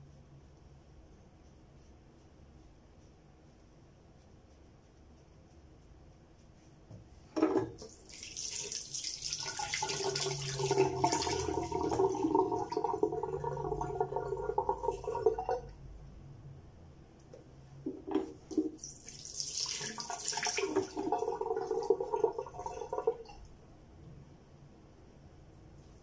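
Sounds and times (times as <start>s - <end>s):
knock: 6.9s - 7.8s
tap water running into sink: 7.4s - 15.6s, 17.9s - 23.3s.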